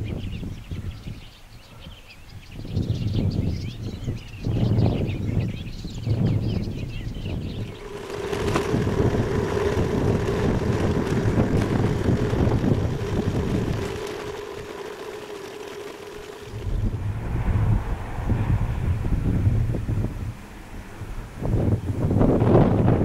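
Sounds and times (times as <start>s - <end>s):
wind buffeting microphone: 0.0s - 1.5s, 2.2s - 23.0s
road and engine hum: 7.3s - 22.7s.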